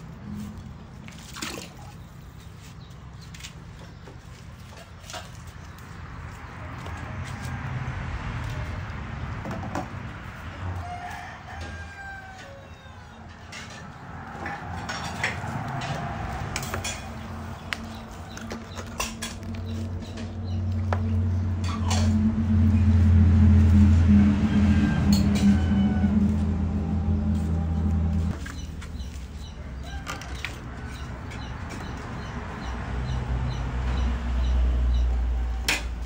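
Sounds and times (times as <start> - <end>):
rooster crowing: 10.6 - 13.3, 23.8 - 28.3, 29.6 - 31.1
steady low drone: 13.7 - 28.4.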